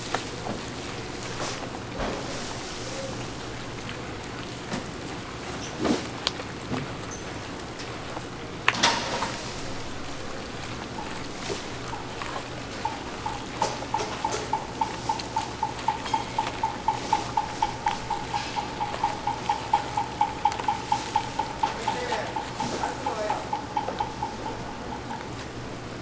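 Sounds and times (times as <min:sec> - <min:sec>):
steady machine hum: 0:06.5 - 0:26.0
kitchen clatters: 0:08.7 - 0:25.5
quick rhythmic knocks: 0:10.0 - 0:26.0.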